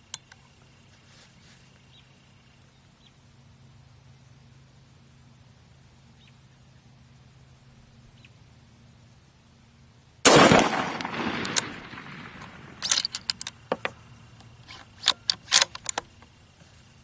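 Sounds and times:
rifle shot: 10.2 - 13.2
rifle bolt clicking: 10.4 - 12.0, 12.8 - 13.6, 14.7 - 16.1.

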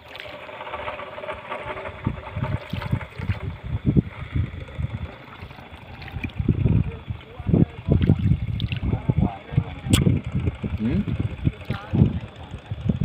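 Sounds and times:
paddle splashing in water: 0.0 - 1.6, 2.5 - 3.6, 5.1 - 6.5, 8.0 - 8.9
water trickling off paddle: 0.0 - 7.3, 7.9 - 9.0.

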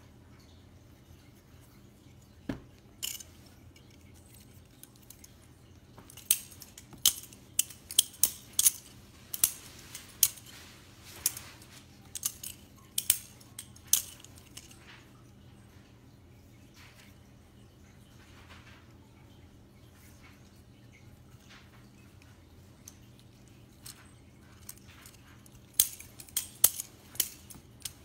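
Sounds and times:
butterfly knife metallic clacks: 6.1 - 10.5, 24.6 - 28.0.

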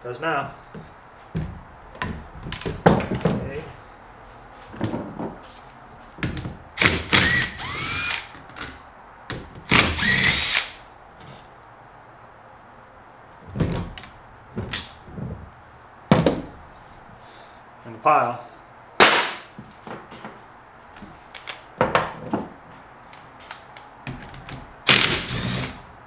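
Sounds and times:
cordless drill spinning: 6.8 - 8.3, 9.7 - 10.8, 24.9 - 25.8
metal parts clinking: 14.7 - 15.1.

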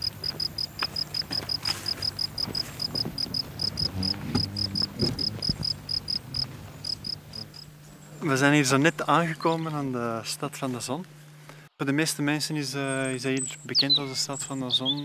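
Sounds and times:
insect chirping: 0.0 - 8.8
faint low hum: 0.0 - 15.0.

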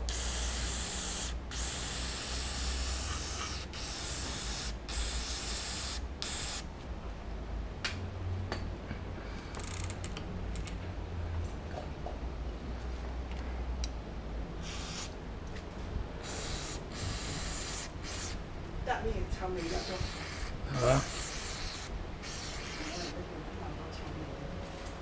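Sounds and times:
aerosol spray hissing: 0.1 - 6.6, 14.6 - 15.1, 16.2 - 18.4, 19.6 - 23.2.

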